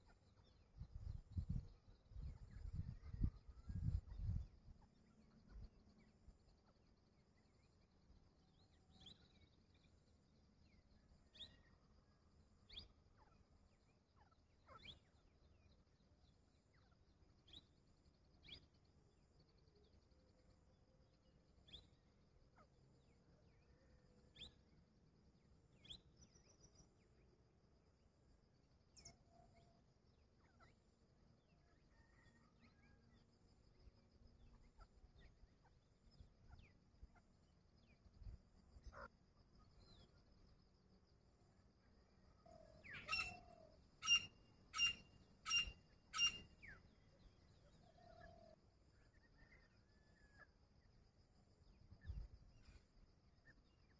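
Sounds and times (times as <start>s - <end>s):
faint bird chirps: 0.0s - 53.9s
high bird trill: 42.8s - 46.8s.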